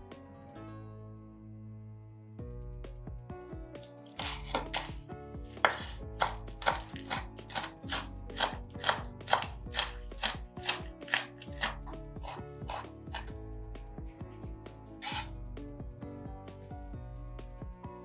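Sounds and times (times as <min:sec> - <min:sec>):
knife chopping on cutting board: 0:04.1 - 0:13.4, 0:15.0 - 0:15.3.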